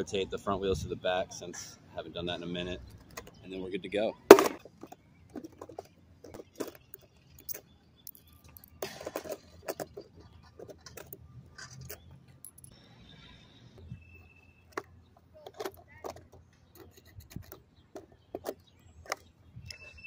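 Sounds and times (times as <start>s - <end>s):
small metal hardware clattering: 4.3s - 12.8s, 14.7s - 19.8s.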